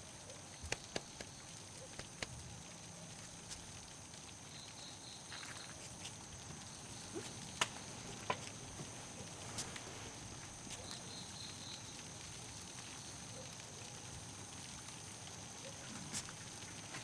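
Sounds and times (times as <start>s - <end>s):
high-pitched insect trill: 4.3s - 7.9s
soft footsteps: 7.1s - 10.9s.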